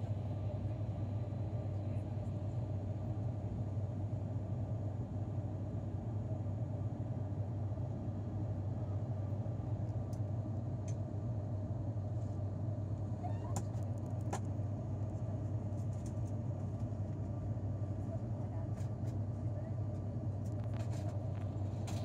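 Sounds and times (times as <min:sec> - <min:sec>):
propeller aircraft cabin drone: 0:00.0 - 0:22.0.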